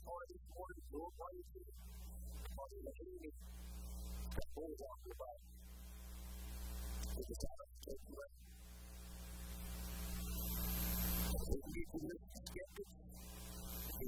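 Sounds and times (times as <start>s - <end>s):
man's voice: 0.0s - 1.8s, 2.4s - 3.4s, 4.4s - 5.4s, 7.1s - 8.4s, 11.3s - 12.9s
low electrical hum: 0.0s - 14.0s.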